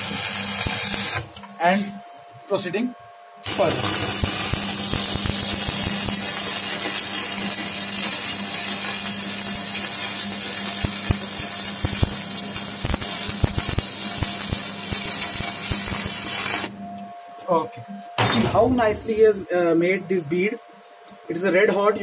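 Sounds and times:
welding arc crackling sizzle: 0:00.0 - 0:01.9, 0:03.4 - 0:16.8, 0:18.6 - 0:19.4
low steady hum: 0:16.7 - 0:22.0.

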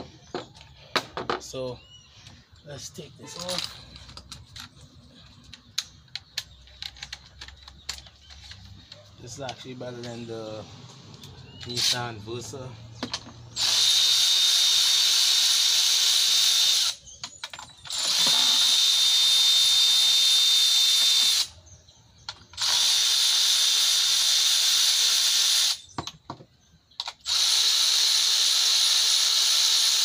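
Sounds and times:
ratchet clicks: 0:05.5 - 0:08.8
electric ratchet whirring: 0:11.5 - 0:12.2, 0:13.5 - 0:17.1, 0:17.8 - 0:21.6, 0:22.5 - 0:25.9, 0:27.0 - 0:30.0.

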